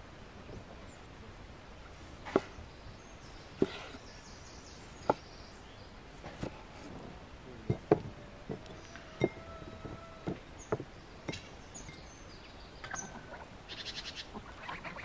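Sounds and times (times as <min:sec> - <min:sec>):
knife knocking on wooden board: 0:07.7 - 0:11.4.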